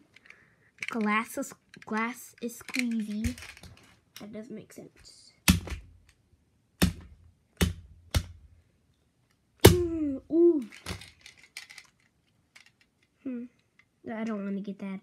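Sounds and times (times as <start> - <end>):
stick striking a plastic toy car: 5.4 - 6.0, 6.8 - 8.4.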